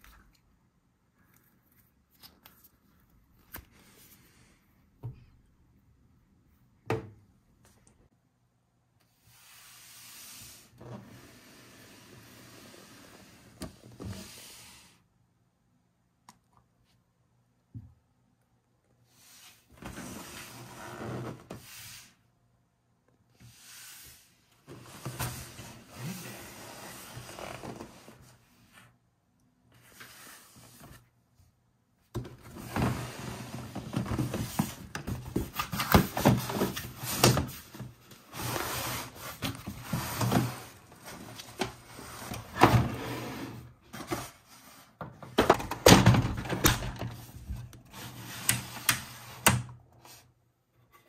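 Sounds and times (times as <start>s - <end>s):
handling cardboard and plastic parts: 33.7s - 42.8s.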